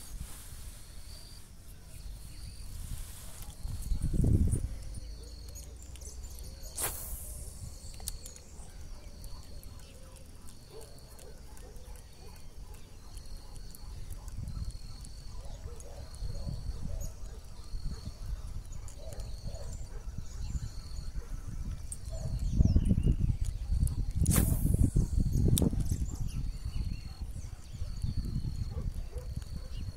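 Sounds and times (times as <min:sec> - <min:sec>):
insects chirping: 0:00.0 - 0:29.9
sharp click: 0:24.2 - 0:25.8.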